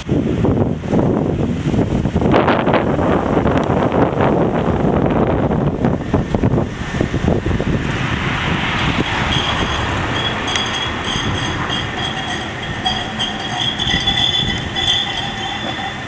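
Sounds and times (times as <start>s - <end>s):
tram running past: 7.7s - 16.0s
high-pitched wheel squeal: 8.8s - 16.0s.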